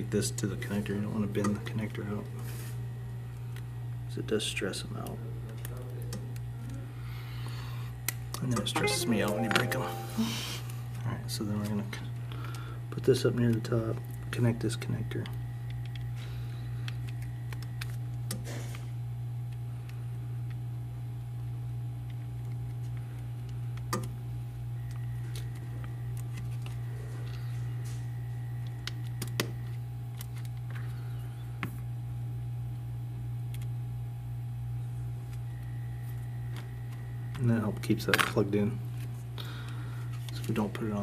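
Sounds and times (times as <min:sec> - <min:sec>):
low electrical hum: 0:00.0 - 0:41.0.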